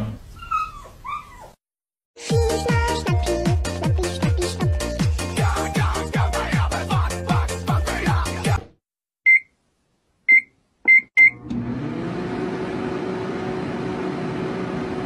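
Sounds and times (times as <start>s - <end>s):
electronic dance music: 2.3s - 8.6s
microwave keypad beeps: 9.3s - 9.5s, 10.3s - 11.4s
microwave running hum: 11.3s - 15.0s.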